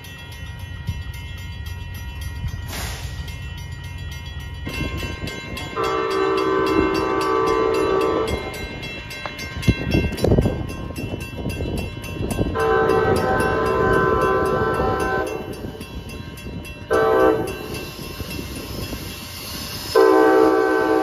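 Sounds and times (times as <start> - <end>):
train rumble: 0.0 - 21.0
short hiss: 2.7 - 3.2
train horn: 5.7 - 8.6, 12.5 - 15.6, 16.9 - 17.8, 19.8 - 21.0.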